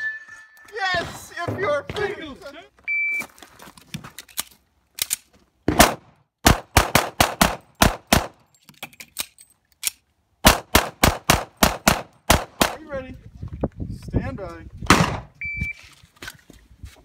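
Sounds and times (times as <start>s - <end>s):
pistol shots: 5.7s - 8.4s, 10.4s - 12.8s.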